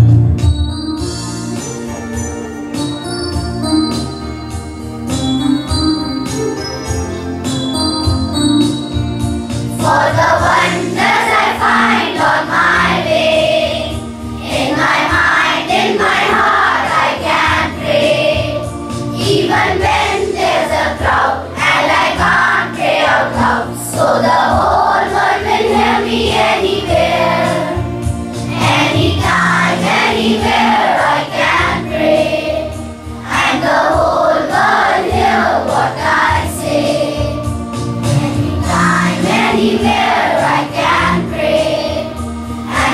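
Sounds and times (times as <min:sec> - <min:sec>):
children's choir singing: 0:09.6 - 0:42.9.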